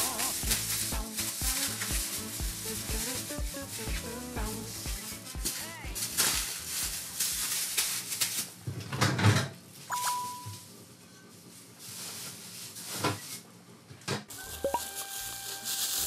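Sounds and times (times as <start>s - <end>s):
dough thumping in plastic bag: 0.0s - 9.3s
short electronic beep: 9.9s - 10.6s.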